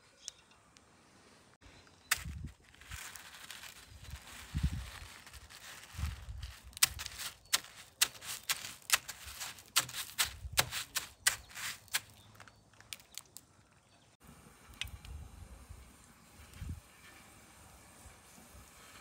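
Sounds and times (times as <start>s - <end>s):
cornflakes crunching: 2.0s - 13.5s.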